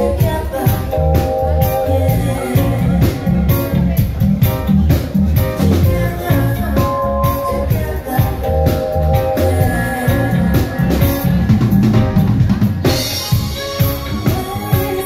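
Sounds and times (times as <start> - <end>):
woman singing: 0.0 - 4.0, 5.6 - 11.9, 13.8 - 15.0
live reggae band: 0.0 - 15.0.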